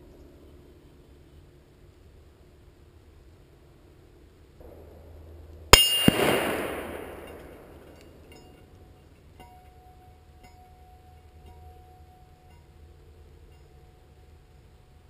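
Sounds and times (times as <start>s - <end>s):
bullet striking steel plate: 4.6s - 8.7s
distant rifle report: 4.6s - 8.7s.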